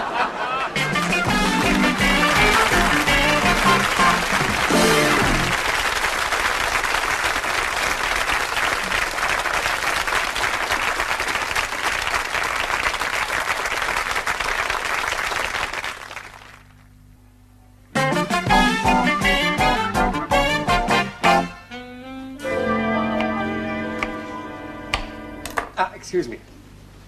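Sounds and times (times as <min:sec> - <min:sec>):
audience applauding: 0:00.0 - 0:16.9
music: 0:00.8 - 0:05.6, 0:17.9 - 0:25.6.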